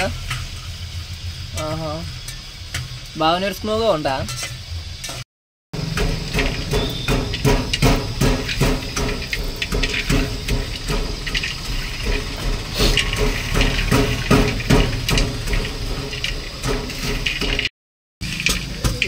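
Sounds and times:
metal pestle pounding in a pot: 0:05.8 - 0:19.0.

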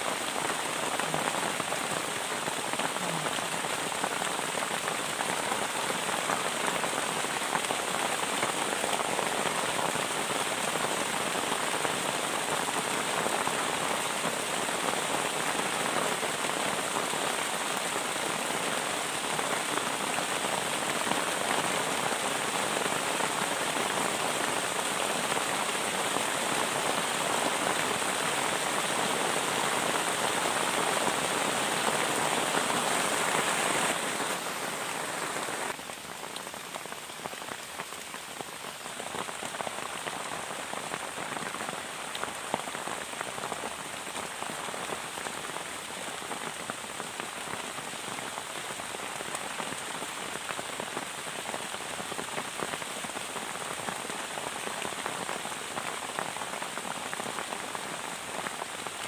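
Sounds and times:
heavy rain on plastic tarp: 0:00.0 - 0:59.0.

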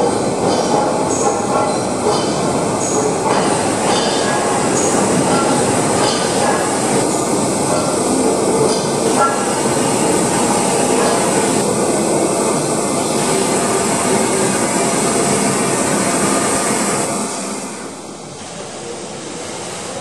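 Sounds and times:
steam hissing: 0:00.0 - 0:20.0
steam locomotive moving slowly: 0:00.0 - 0:20.0.

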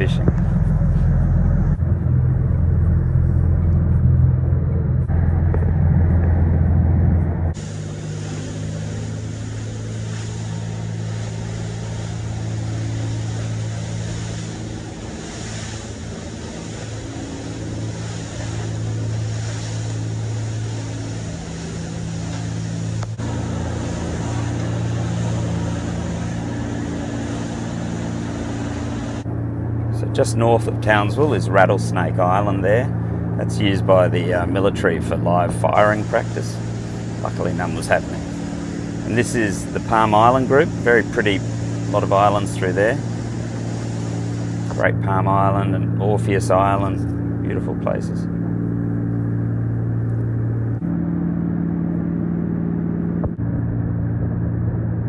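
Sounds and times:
boat diesel engines droning: 0:00.0 - 0:55.0
wind and spray rushing: 0:05.1 - 0:50.7
hiss of water and air: 0:07.3 - 0:50.3.

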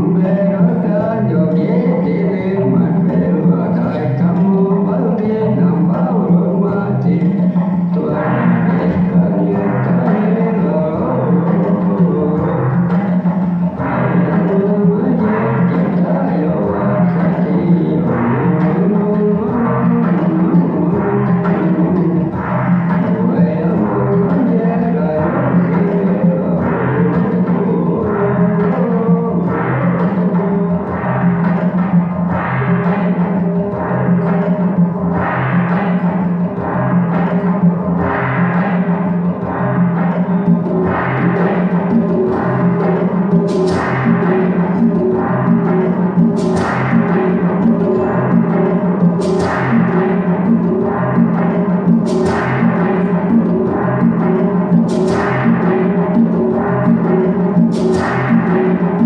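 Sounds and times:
live band music: 0:00.0 - 0:59.0
cymbal crash: 0:30.9 - 0:59.0.

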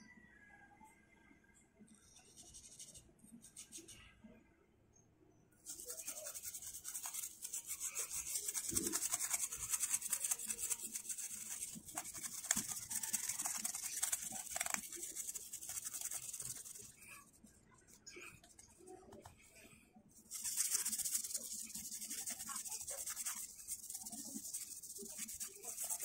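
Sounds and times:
toothbrush scrubbing plastic: 0:05.6 - 0:26.0.

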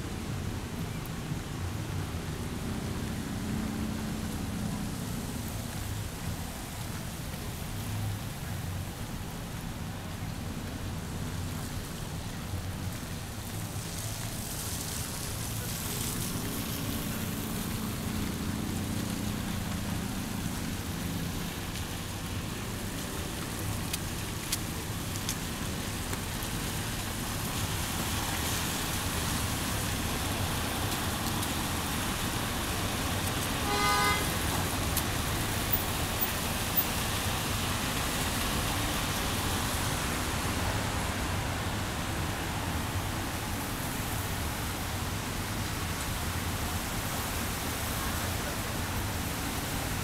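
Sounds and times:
tyres hissing on wet road: 0:00.0 - 0:50.0
car horn toot: 0:33.6 - 0:34.3.

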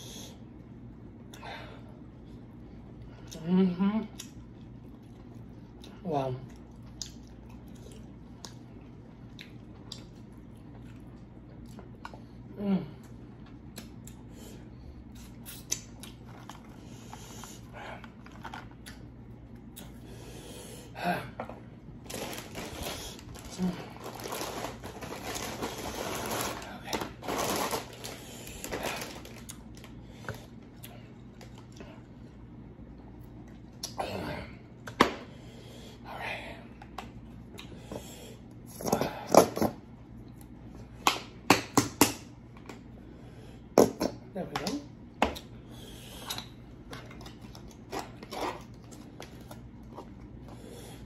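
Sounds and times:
chewing: 0:04.1 - 0:12.3.

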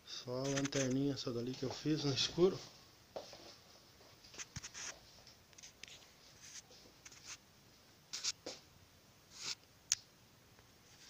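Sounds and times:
soft handling rustles: 0:00.5 - 0:07.4.

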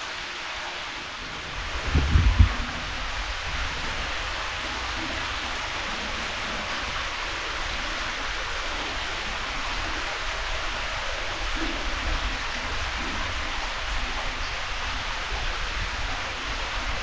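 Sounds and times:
falling water hiss: 0:00.0 - 0:17.0
low rumble: 0:01.6 - 0:03.5.

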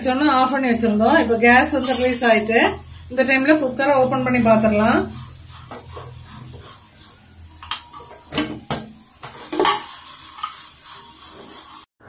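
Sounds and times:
metal lid clanking and scraping: 0:04.4 - 0:11.6.

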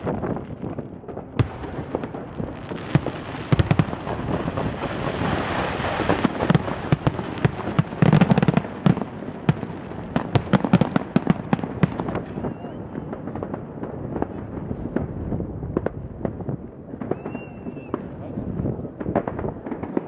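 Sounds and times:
firework crackling hiss: 0:01.5 - 0:16.4.

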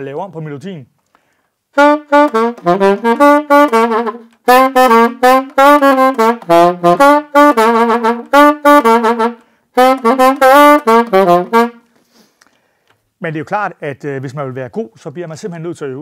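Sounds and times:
player breathing: 0:01.0 - 0:01.6, 0:09.4 - 0:09.7, 0:11.8 - 0:13.0
alto saxophone solo melody: 0:01.7 - 0:11.9.

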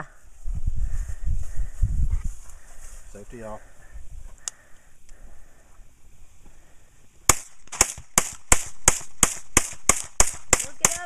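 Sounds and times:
rifle gunshots: 0:07.3 - 0:11.0.

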